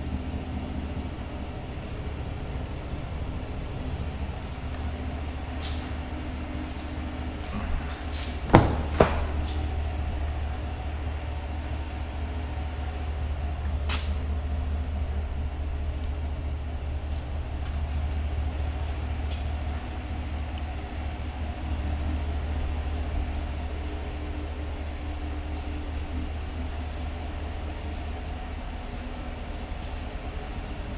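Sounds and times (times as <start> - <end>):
steady low rumble: 0.0 - 30.9
sharp knocks: 8.5 - 9.4.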